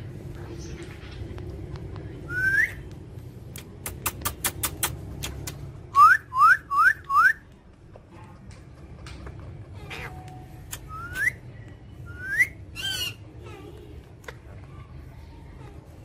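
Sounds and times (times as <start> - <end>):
parakeet clicks: 2.9 - 5.7
parakeet whistled calls: 12.1 - 13.3.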